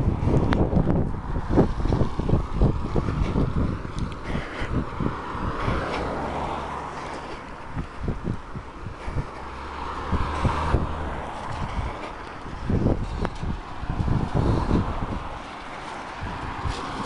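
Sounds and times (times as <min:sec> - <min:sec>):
cars passing on wet road: 0:00.0 - 0:17.0
wind on microphone: 0:00.0 - 0:17.0.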